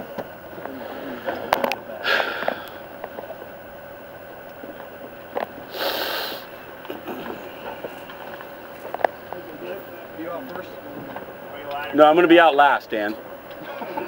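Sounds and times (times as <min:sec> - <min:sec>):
breathy rushes of noise: 0:05.7 - 0:06.5.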